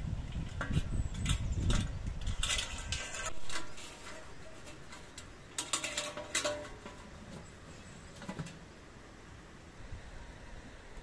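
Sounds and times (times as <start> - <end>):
metal pan and chains clinking: 2.3 - 7.1.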